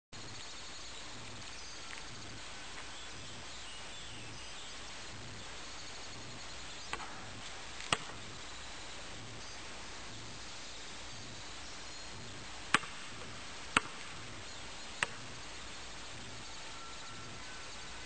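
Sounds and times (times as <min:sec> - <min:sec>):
steady outdoor hiss: 0:00.1 - 0:18.0
faint bird chirps: 0:00.2 - 0:18.0
basketball striking hard: 0:12.7 - 0:13.0.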